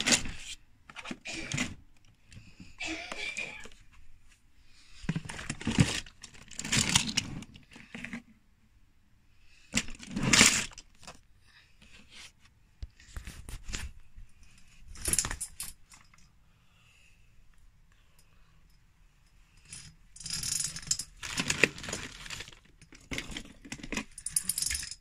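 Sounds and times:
toy cars clinking and rattling: 14.9s - 16.3s, 19.5s - 25.0s.

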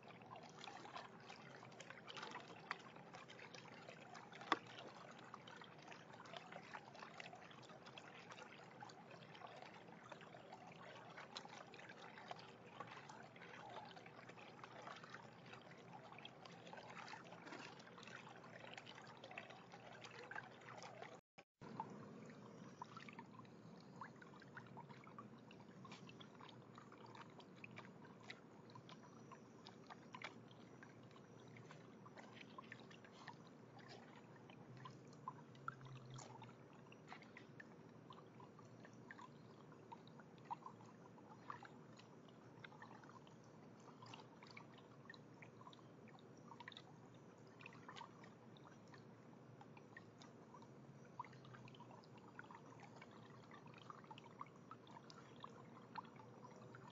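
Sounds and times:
fountain water trickling: 0.0s - 56.9s
small ticks: 21.7s - 56.9s.

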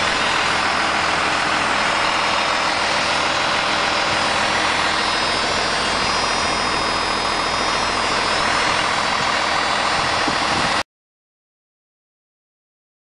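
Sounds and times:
diesel engine idling: 0.0s - 10.8s.

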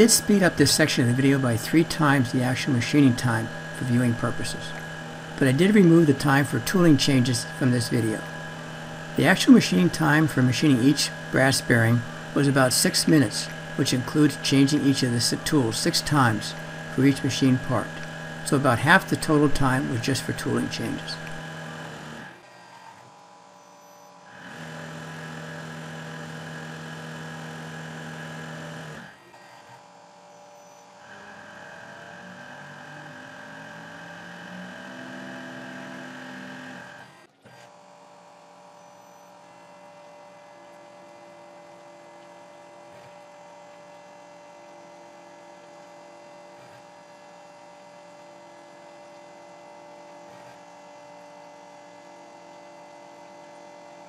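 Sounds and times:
lathe whining and humming: 0.0s - 54.0s.

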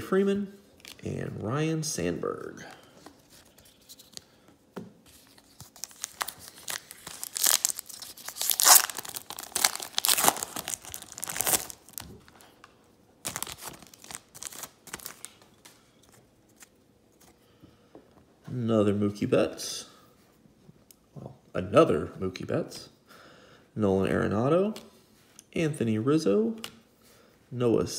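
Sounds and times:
foil pack crinkling and tearing: 5.5s - 12.1s, 13.2s - 15.6s.

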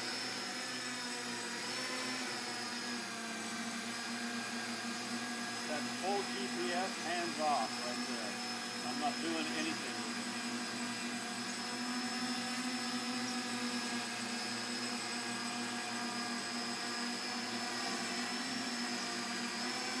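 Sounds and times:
drone rotors whining: 0.0s - 20.0s.

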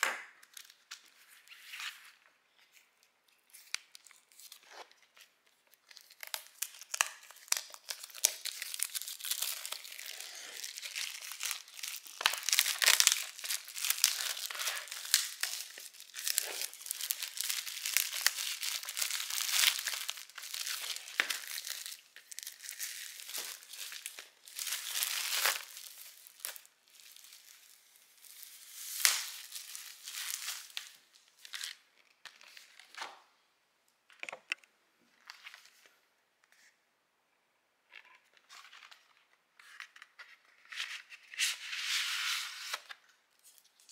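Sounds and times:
plastic shrink-wrap crinkling: 5.7s - 31.8s.

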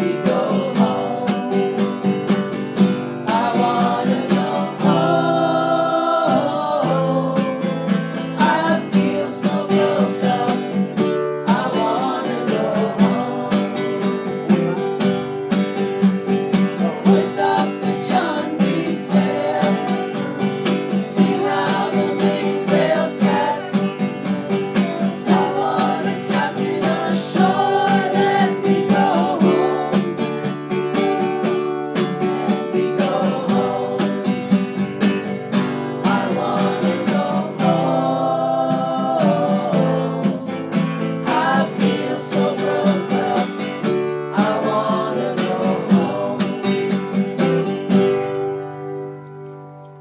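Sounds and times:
woman singing: 0.0s - 1.9s, 3.3s - 14.8s, 16.8s - 30.3s, 36.0s - 40.6s, 44.3s - 46.6s
strummed acoustic guitar: 0.0s - 50.0s.

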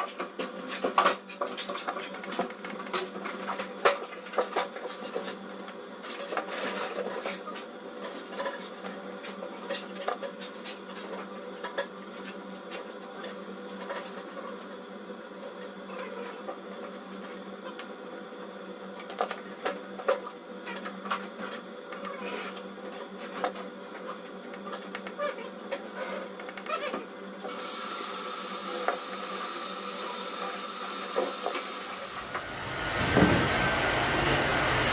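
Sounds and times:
steady background hum: 0.0s - 34.9s.

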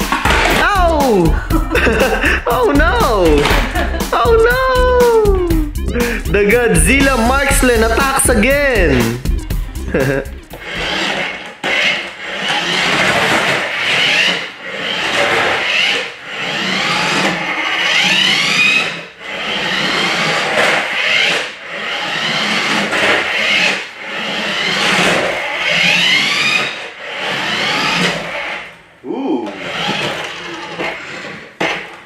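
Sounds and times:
toy car electric motor whining: 7.0s - 32.0s.

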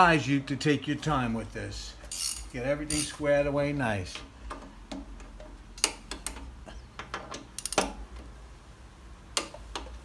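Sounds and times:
ratchet clicking: 2.1s - 3.2s, 7.6s - 8.0s.

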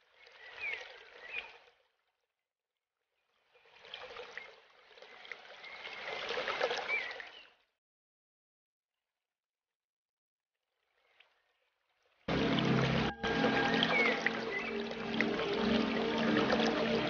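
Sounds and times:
aquarium water trickling: 12.3s - 17.0s.

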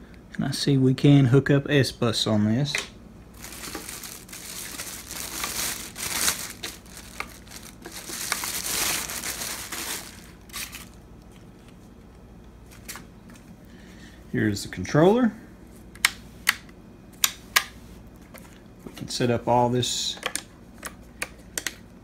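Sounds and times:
plastic bag crinkling: 3.4s - 11.6s.

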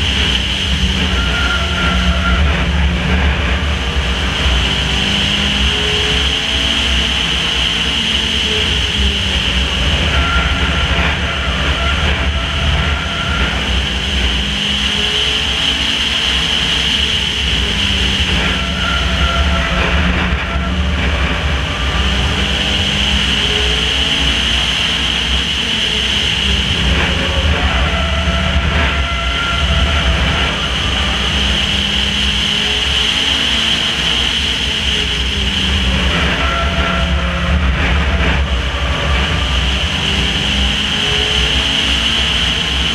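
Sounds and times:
racing car engine: 0.0s - 42.9s
road rumble: 0.0s - 42.9s.

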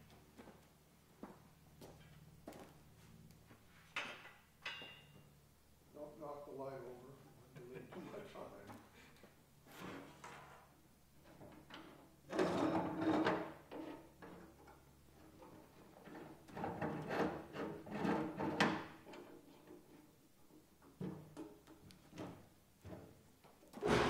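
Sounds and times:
metal frame clanking and rattling: 23.8s - 24.0s.

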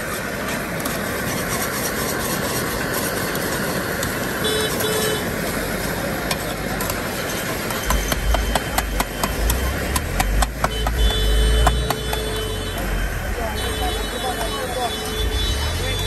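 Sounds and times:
metal spatula scraping a pan: 0.0s - 4.1s
street noise: 0.0s - 16.0s.

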